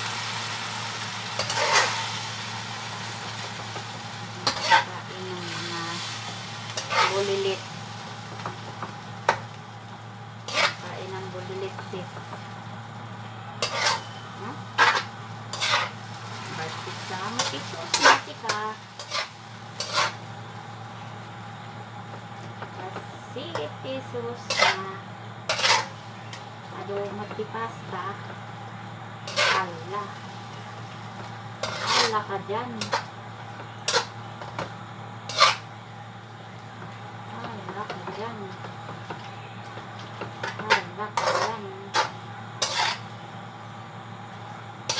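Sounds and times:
steady low hum: 0.0s - 44.9s
fork scraping frying pan: 1.4s - 2.0s, 4.4s - 4.9s, 6.8s - 7.4s, 10.4s - 10.9s, 13.6s - 14.2s, 14.8s - 16.0s, 17.3s - 20.2s, 24.5s - 24.8s, 25.5s - 26.0s, 29.3s - 29.7s, 31.6s - 33.1s, 33.9s - 34.1s, 35.3s - 35.7s, 40.4s - 43.1s.

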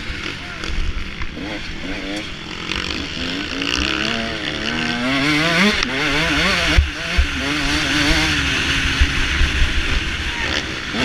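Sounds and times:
dirt bike engine revving: 0.0s - 11.0s
low thumps: 6.4s - 10.1s.

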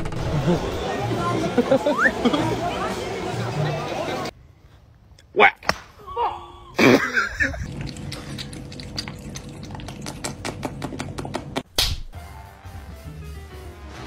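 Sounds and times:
cat lapping water: 7.6s - 11.6s.

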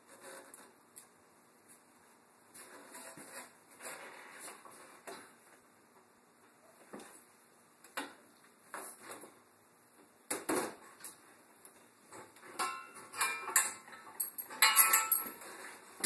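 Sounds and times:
metallic clinks of tools: 12.6s - 15.4s
ringing metal clanks: 12.6s - 15.4s.

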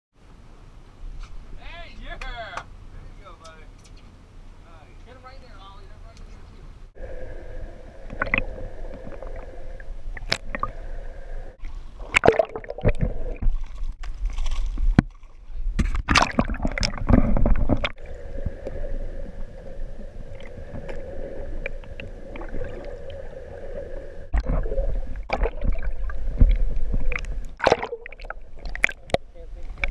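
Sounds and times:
low rumble: 6.3s - 14.4s, 16.6s - 29.9s
steady hum: 6.7s - 13.5s, 16.2s - 29.9s
water gurgling and sloshing: 6.9s - 29.9s
water splashing: 7.0s - 29.9s.

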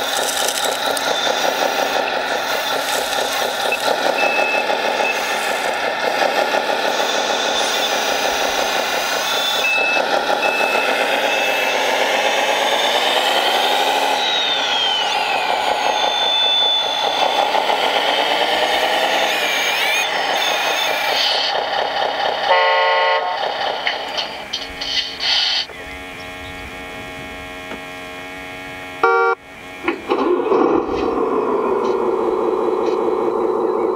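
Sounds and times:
simulated diesel engine: 0.0s - 33.9s
horn toot: 29.0s - 29.4s.

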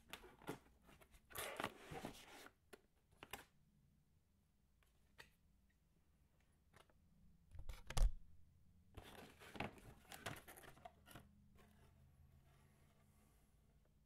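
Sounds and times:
cardboard and paper rustling: 9.0s - 13.1s.

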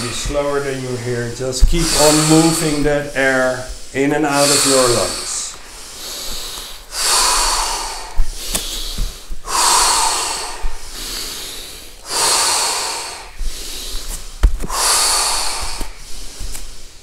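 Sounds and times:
people breathing deeply through mouth: 0.0s - 17.0s
bare footsteps on mat: 1.4s - 4.2s, 7.4s - 9.6s, 13.3s - 16.9s.

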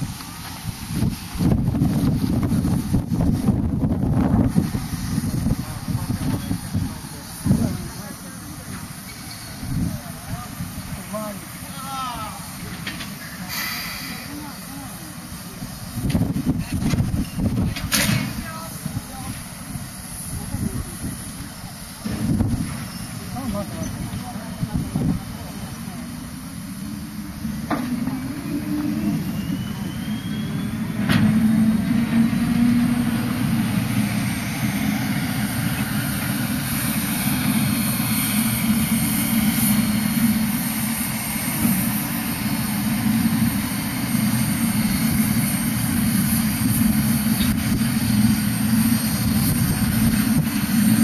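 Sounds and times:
steam hissing: 0.0s - 51.0s.

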